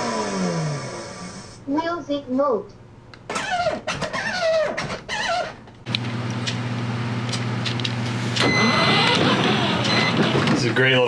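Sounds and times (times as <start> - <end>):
toy truck electric motors whining: 8.4 - 10.5.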